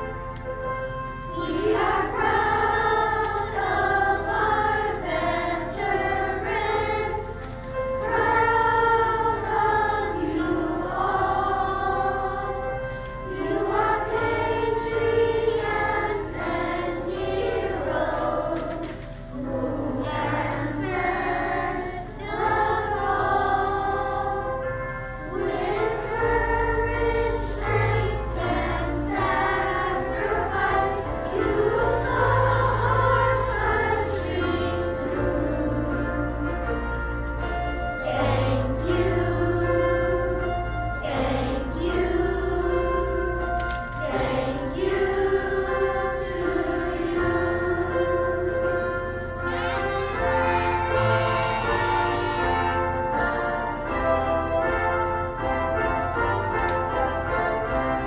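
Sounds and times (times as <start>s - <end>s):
children's choir singing: 0.0s - 58.0s
instrumental accompaniment: 0.0s - 58.0s.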